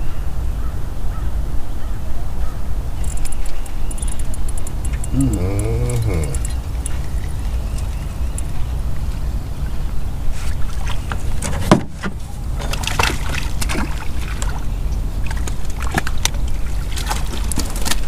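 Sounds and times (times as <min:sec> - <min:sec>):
steady low rumble: 0:00.2 - 0:18.0
splashy clicks: 0:03.0 - 0:09.3, 0:12.6 - 0:18.0
sharp knocks in boat: 0:10.8 - 0:14.6.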